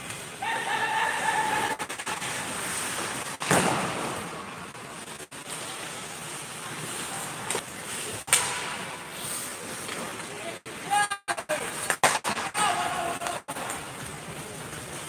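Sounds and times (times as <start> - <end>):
skates hissing on ice: 0.0 - 10.8
sharp crack: 1.6 - 4.8, 7.4 - 10.1, 11.8 - 13.8
loud thump: 3.4 - 4.2.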